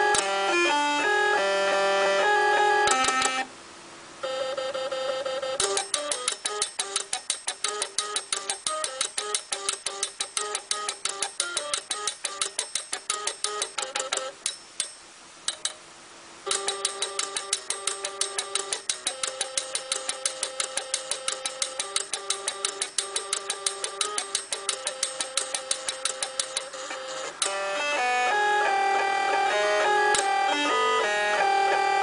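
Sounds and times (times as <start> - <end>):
stepper motors playing a tune: 0.0 - 3.5, 4.2 - 15.8, 16.5 - 32.0
fast regular ticking: 5.6 - 15.8, 16.5 - 27.5.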